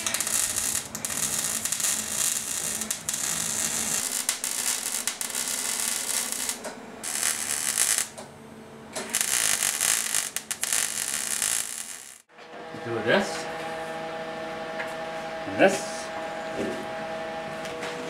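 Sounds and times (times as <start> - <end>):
welder arc crackling and sizzling: 0.0 - 8.3, 9.0 - 12.3.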